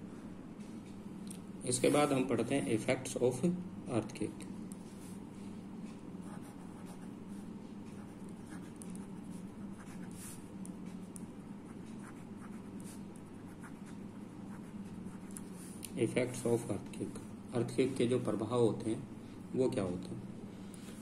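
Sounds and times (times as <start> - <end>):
steady low hum: 0.0 - 21.0
pen scratching on paper: 6.2 - 10.4, 11.7 - 15.7.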